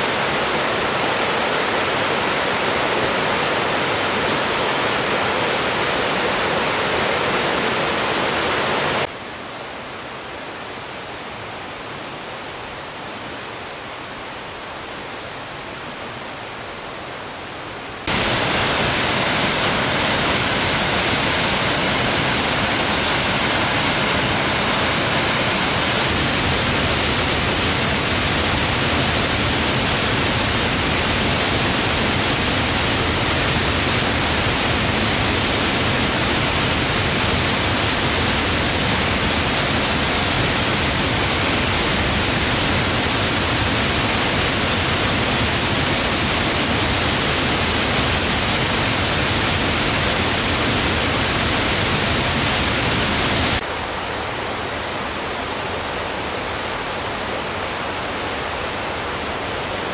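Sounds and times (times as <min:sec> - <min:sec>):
waterfall pouring: 0:18.1 - 0:53.6.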